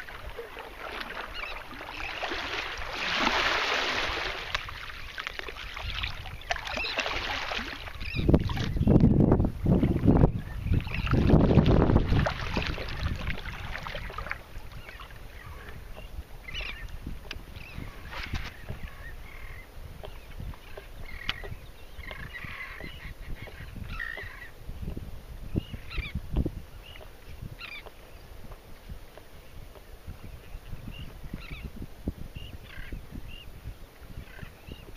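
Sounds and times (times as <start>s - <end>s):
kayak paddle splashing: 0.0s - 8.9s, 10.7s - 24.5s
birds calling: 0.0s - 9.1s, 13.9s - 24.6s, 25.5s - 28.3s, 30.2s - 31.8s, 32.4s - 34.9s
water lapping against hull: 0.0s - 34.9s.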